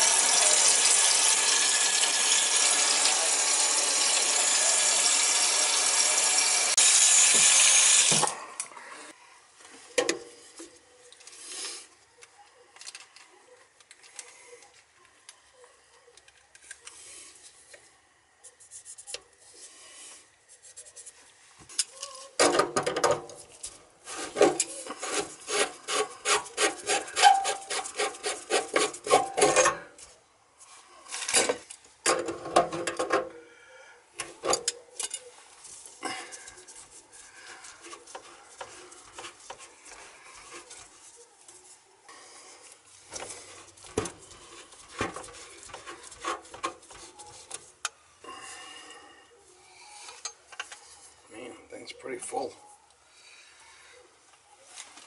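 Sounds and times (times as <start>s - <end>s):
rapid rasping scrape: 24.0s - 29.4s, 43.1s - 47.8s.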